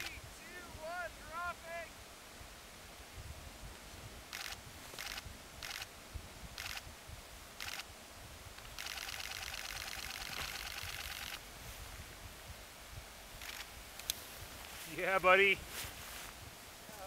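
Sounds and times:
camera shutter clicks: 4.3s - 5.9s, 6.6s - 6.8s, 7.6s - 7.9s, 8.6s - 11.4s, 13.4s - 13.7s.

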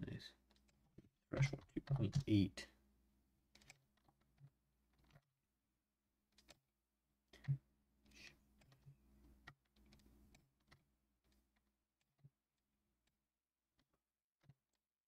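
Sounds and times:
keyboard and mouse clicks: 1.4s - 2.4s, 3.5s - 5.3s, 6.3s - 6.6s, 7.4s - 12.3s.

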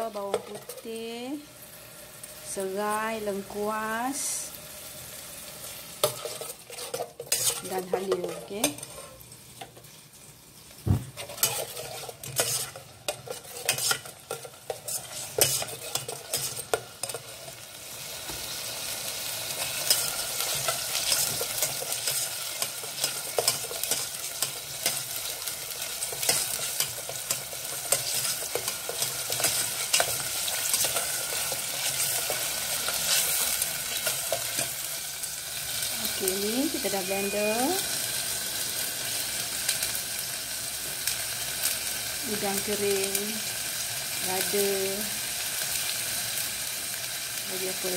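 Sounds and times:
paste frying in hot oil: 0.0s - 47.9s
spatula scraping and knocking pot: 6.0s - 9.7s, 10.9s - 17.4s.

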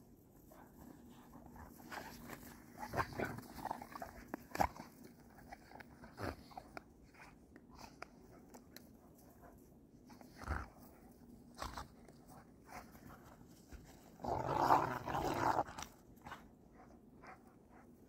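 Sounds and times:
paws scuffling in snow: 0.1s - 6.4s, 9.0s - 14.6s.

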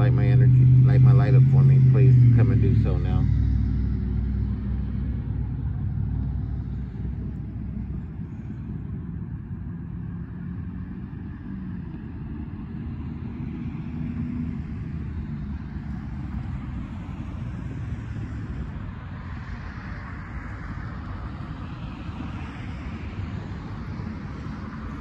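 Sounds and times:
traffic rumble: 0.0s - 25.0s.

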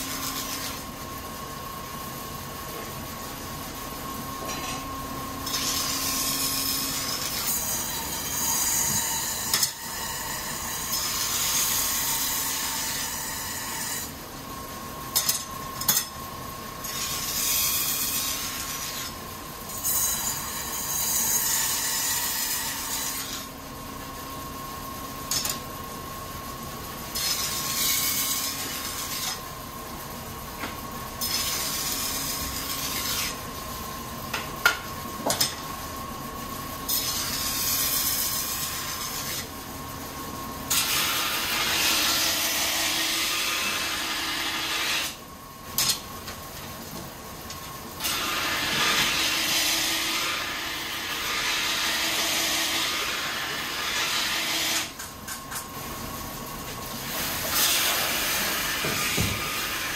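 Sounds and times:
sharpening wheel whine: 0.0s - 0.9s, 4.4s - 14.2s, 31.2s - 33.4s, 48.0s - 55.6s.

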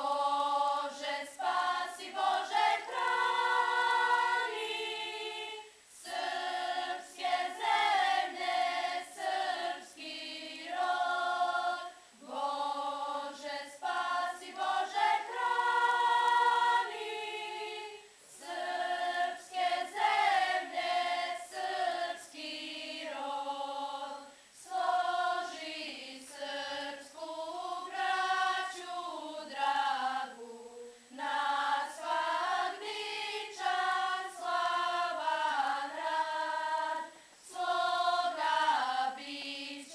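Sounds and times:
girls' choir singing: 0.0s - 39.9s.

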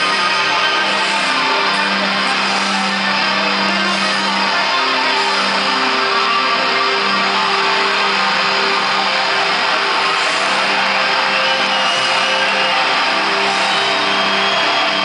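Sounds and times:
distorted electric guitar: 0.0s - 15.0s
heavy metal band playing live: 0.0s - 15.0s.

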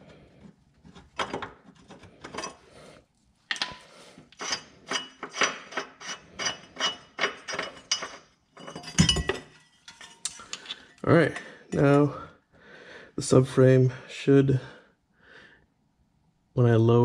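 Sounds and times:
hand tools clicking on metal: 3.5s - 9.3s, 9.9s - 11.0s.

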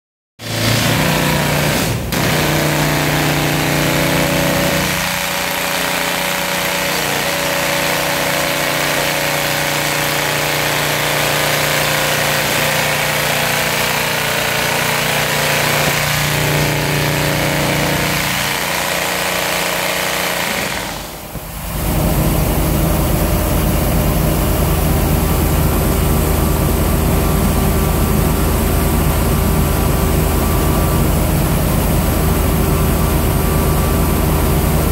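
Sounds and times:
rock drill hammering: 0.6s - 21.5s.

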